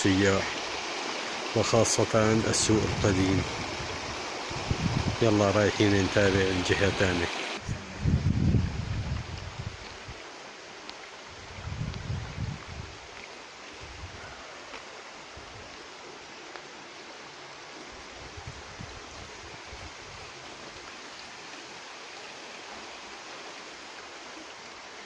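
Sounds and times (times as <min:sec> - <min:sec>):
stream water rushing: 0:00.0 - 0:25.0
wind buffets on microphone: 0:02.3 - 0:07.0, 0:07.6 - 0:10.2, 0:11.3 - 0:13.1, 0:13.8 - 0:14.4, 0:18.2 - 0:20.3.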